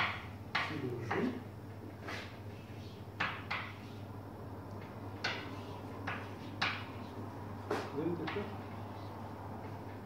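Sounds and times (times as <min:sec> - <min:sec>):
chalk tapping on blackboard: 0:00.0 - 0:01.4, 0:03.2 - 0:03.9, 0:05.2 - 0:07.0.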